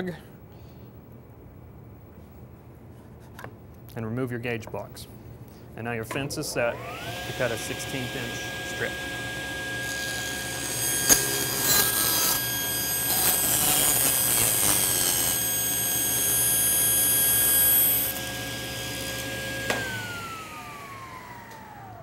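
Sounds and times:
table saw cutting wood: 6.5 - 22.0
saw motor whine: 6.6 - 22.0.

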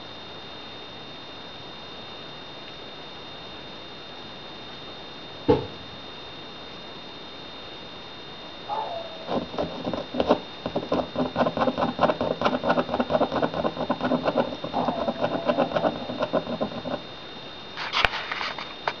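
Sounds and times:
puppy whining: 8.7 - 9.6, 14.5 - 17.0
puppies growling and yipping: 14.6 - 16.2.

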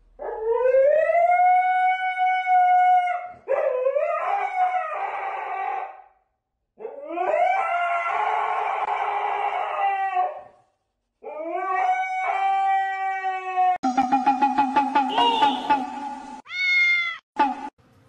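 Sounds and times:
dog howling: 6.8 - 10.6, 11.2 - 13.8.

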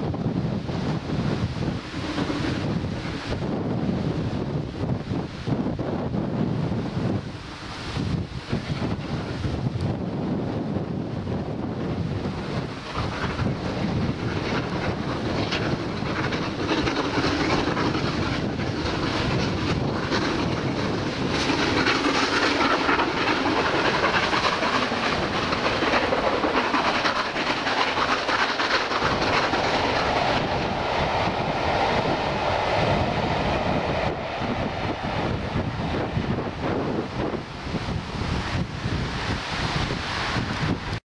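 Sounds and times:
steam train working hard: 0.0 - 41.0
wind buffeting microphone: 0.0 - 41.0
coaches clattering over rail joints: 1.3 - 3.5, 12.3 - 32.3.

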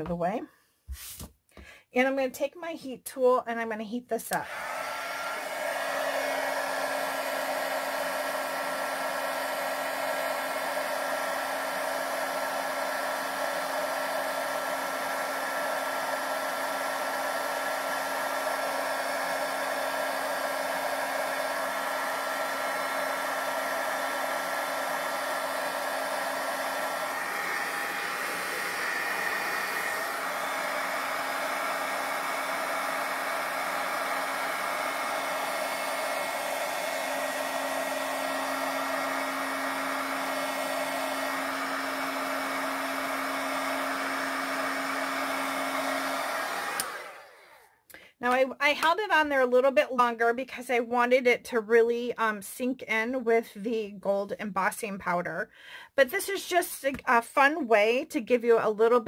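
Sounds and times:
heat tool fan humming and whining: 4.5 - 47.5.

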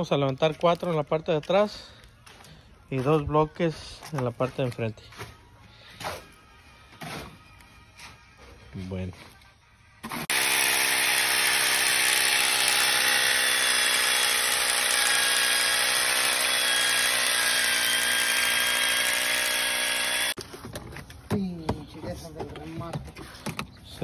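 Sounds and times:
power drill boring into concrete: 10.0 - 20.4.

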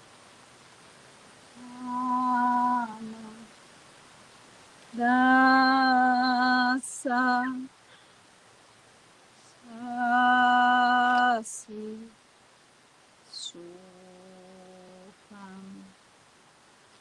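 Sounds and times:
woman singing long wordless notes: 1.5 - 3.6, 4.9 - 7.7, 9.6 - 12.2, 13.3 - 16.0.

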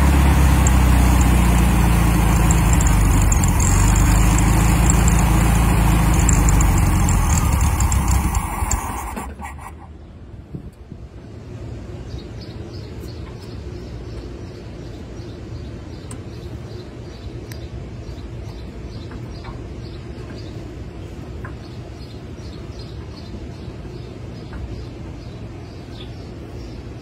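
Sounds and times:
car engine idling: 0.0 - 9.9.

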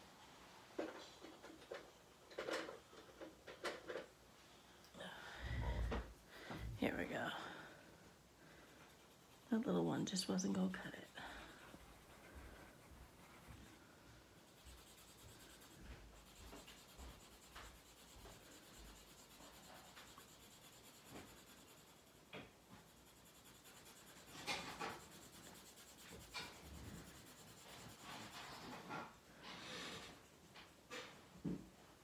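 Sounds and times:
blending stump scratching paper: 9.0 - 29.1.

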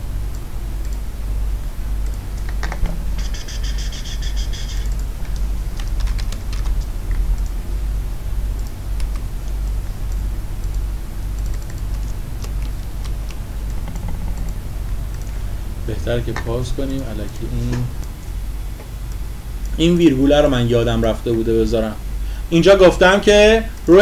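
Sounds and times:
low hum: 0.0 - 24.0
keyboard keys clicking: 2.0 - 7.6, 8.6 - 15.4.

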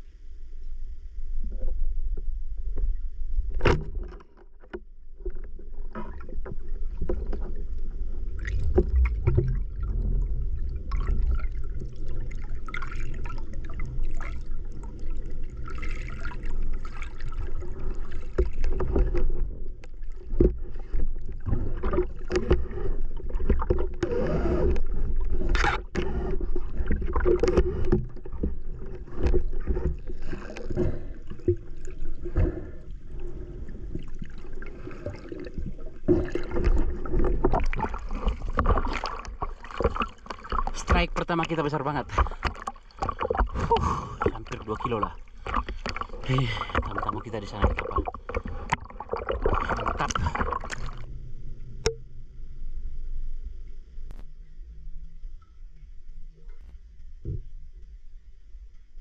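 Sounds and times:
underwater water rumble: 0.0 - 59.0
clicks and knocks from diving gear: 2.8 - 7.5, 25.5 - 26.1, 42.2 - 44.4
bubbling: 5.7 - 51.1.

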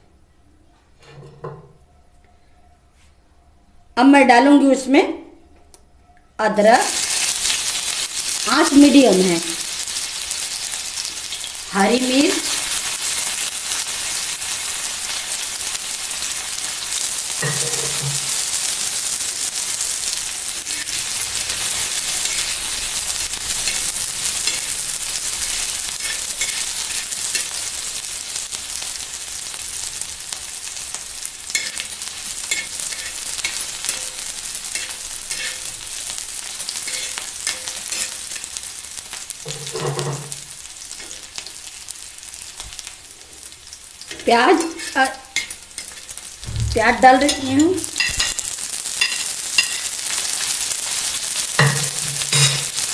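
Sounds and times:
food sizzling in hot oil: 6.6 - 52.9
metal spatula scraping griddle: 31.5 - 35.8.

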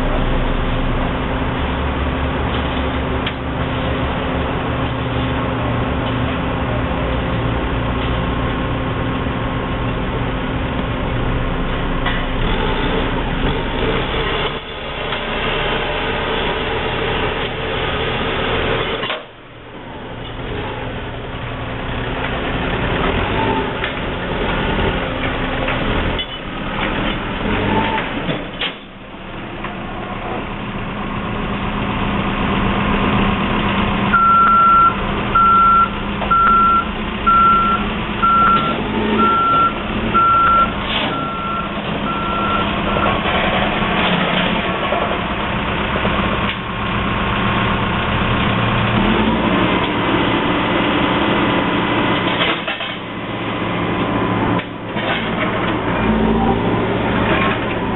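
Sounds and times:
heavy machinery engine running: 0.0 - 57.9
reversing alarm beeping: 34.1 - 43.2.

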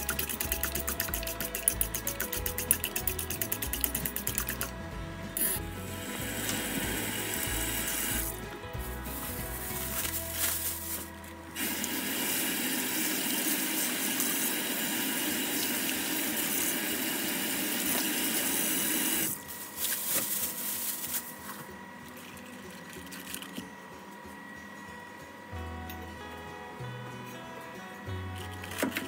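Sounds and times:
cabbage leaves rustling: 8.8 - 11.3, 19.3 - 21.7.

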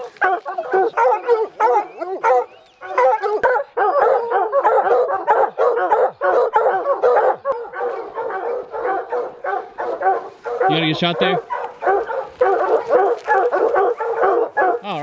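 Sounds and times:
hounds baying and barking: 0.0 - 15.0.

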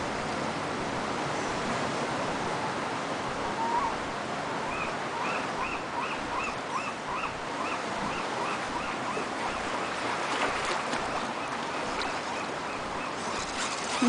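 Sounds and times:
ocean surf against rocks: 6.6 - 14.0
small bird chirping: 12.3 - 14.0.

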